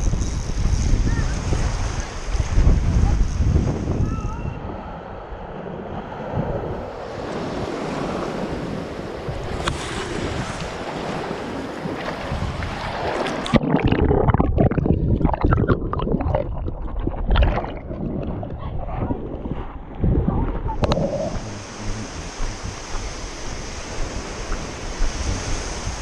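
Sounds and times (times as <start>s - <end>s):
wind on microphone: 0.0s - 26.0s
water splashing against microphone: 12.0s - 26.0s.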